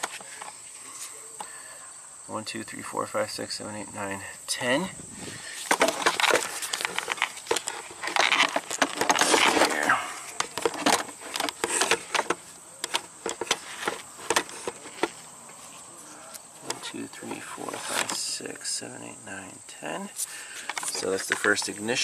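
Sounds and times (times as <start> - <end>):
gloved hands rustling: 5.1 - 18.2.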